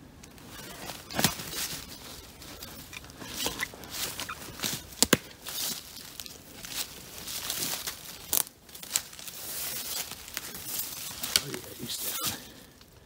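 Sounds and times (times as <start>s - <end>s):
footsteps crunching through dry leaves: 0.3s - 12.8s.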